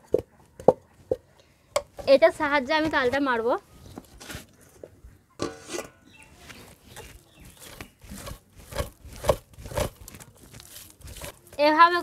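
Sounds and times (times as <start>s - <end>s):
fruit pulp rubbed over a net: 6.3s - 12.0s.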